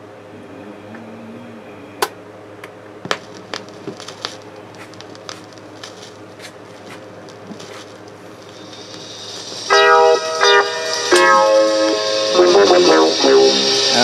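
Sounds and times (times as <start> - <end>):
low steady hum: 0.0 - 14.0
stylus clicks and pops: 3.1 - 6.0.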